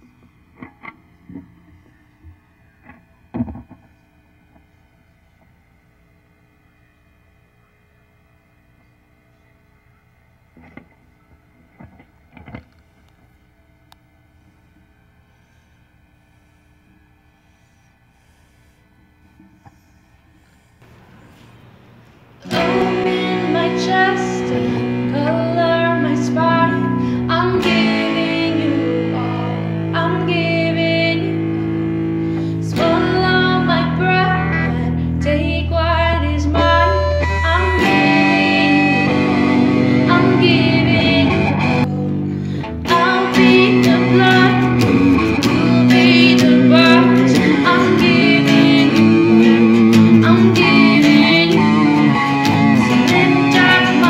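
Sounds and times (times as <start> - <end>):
acoustic guitar strumming: 20.8 - 54.0
woman singing: 22.4 - 31.8, 32.6 - 42.1, 42.8 - 54.0.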